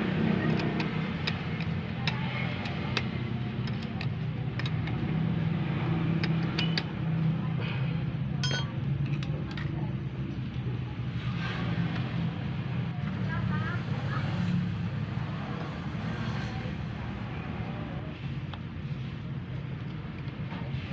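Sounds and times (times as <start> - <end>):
metal clink: 8.4 - 8.8.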